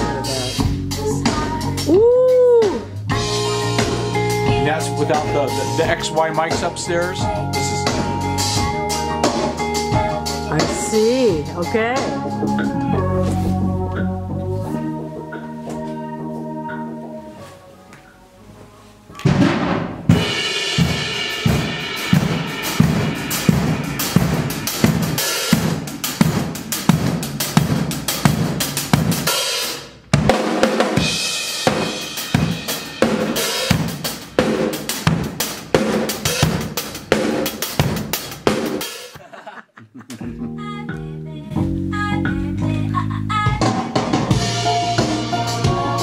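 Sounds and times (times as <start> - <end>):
drum kit playing a groove: 0.0 - 17.3, 19.2 - 39.2, 39.9 - 46.0
band music with low chord: 0.0 - 46.0
person chuckling: 39.2 - 40.6.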